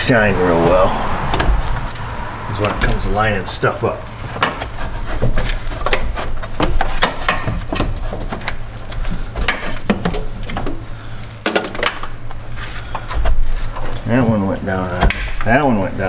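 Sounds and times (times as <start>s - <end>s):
plastic and metal knocking and rubbing: 4.2s - 10.8s.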